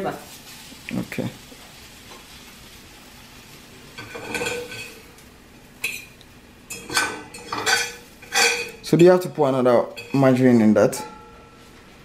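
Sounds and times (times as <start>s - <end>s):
utensil scraping frying pan: 3.9s - 5.2s, 5.8s - 11.8s.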